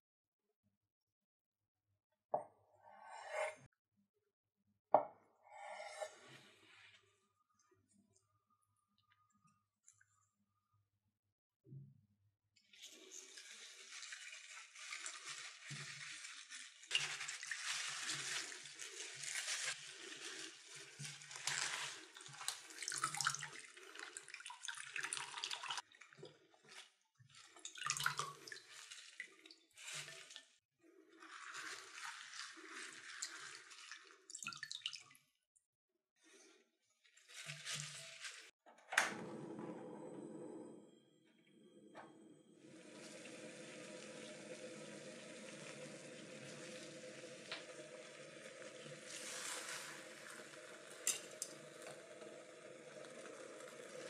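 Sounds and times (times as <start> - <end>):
kitchen tap running into sink: 12.8 - 26.2, 42.6 - 54.0
water splashing on spinach: 13.0 - 25.9, 31.2 - 35.2, 47.8 - 52.2.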